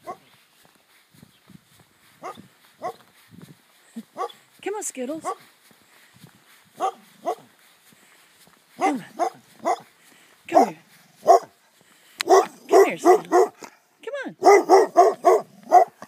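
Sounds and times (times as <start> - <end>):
dog barking: 0.0 - 0.3, 2.2 - 3.0, 4.1 - 4.4, 6.8 - 7.5, 8.8 - 9.9, 10.5 - 11.6, 12.2 - 13.7, 14.4 - 16.0.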